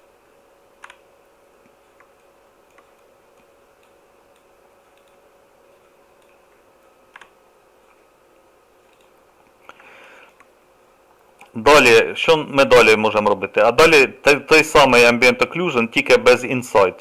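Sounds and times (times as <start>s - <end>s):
faint steady hum: 0.0s - 17.0s
computer mouse clicks: 0.8s - 8.0s, 8.8s - 10.5s, 11.4s - 11.6s.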